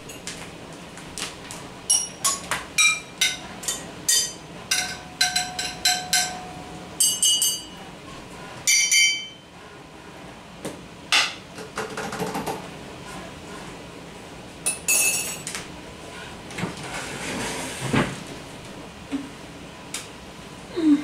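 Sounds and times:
spoon and dishes clinking: 1.9s - 7.8s, 14.7s - 15.5s.

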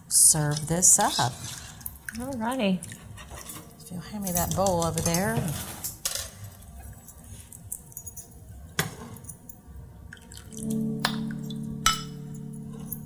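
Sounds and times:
metal ladle scraping a pan: 0.6s - 2.0s
soft background music: 2.2s - 13.0s.

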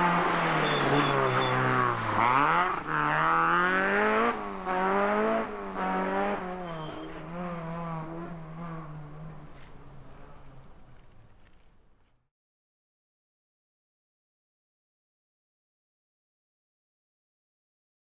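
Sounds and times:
rally car engine revving: 0.0s - 11.2s.

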